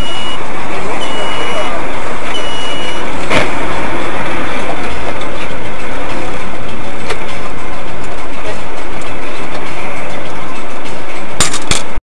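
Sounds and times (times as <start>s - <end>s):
short beep: 0.0s - 0.4s, 1.0s - 3.1s
vehicle engine running: 0.0s - 12.0s.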